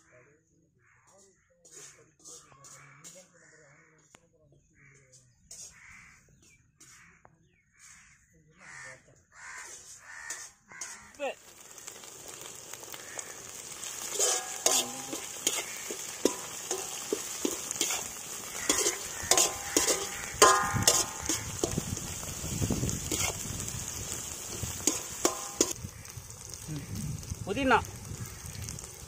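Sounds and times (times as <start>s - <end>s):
metal ladle scraping pan: 1.6s - 3.3s, 5.5s - 6.0s, 9.6s - 11.2s, 13.2s - 25.8s
onions sizzling in hot oil: 9.4s - 29.0s.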